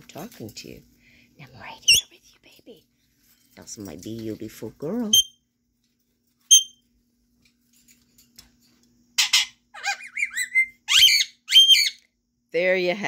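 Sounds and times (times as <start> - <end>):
parrot chirps and whistles: 1.8 - 2.1, 5.1 - 5.4, 6.5 - 6.8, 9.2 - 12.0.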